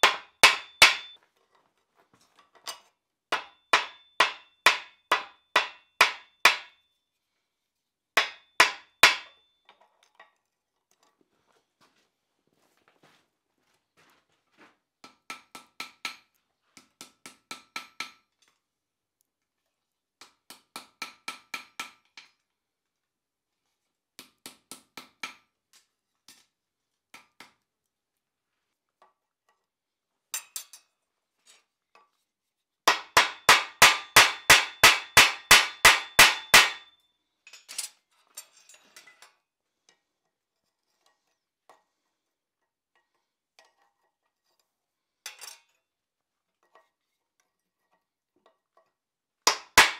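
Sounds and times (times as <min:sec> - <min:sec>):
hammer striking steel on anvil: 0:00.0 - 0:01.2, 0:03.3 - 0:06.8, 0:08.2 - 0:09.4, 0:32.9 - 0:37.0, 0:49.5 - 0:49.9.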